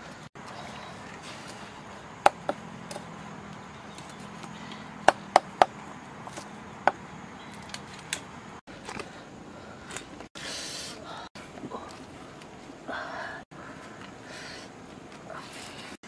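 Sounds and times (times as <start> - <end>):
cleaver chopping on wooden block: 5.0 - 7.0.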